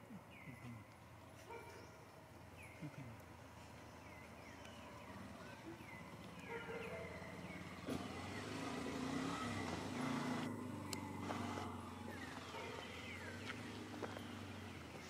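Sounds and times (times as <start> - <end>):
vehicle engine passing: 4.1 - 15.0.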